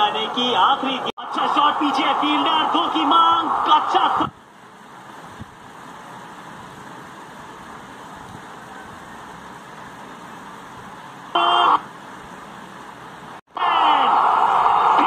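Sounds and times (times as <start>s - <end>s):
steady background hiss: 0.0s - 15.0s
burst of broadcast sound: 11.3s - 11.9s.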